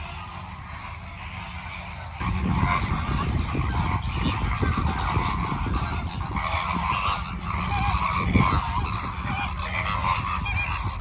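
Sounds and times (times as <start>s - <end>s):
flamingos honking and chattering: 0.0s - 11.0s
steady low rumble: 0.0s - 11.0s.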